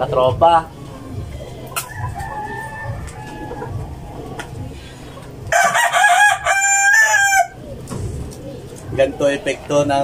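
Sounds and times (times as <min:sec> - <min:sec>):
rooster crowing: 0:01.9 - 0:03.8, 0:05.5 - 0:07.6.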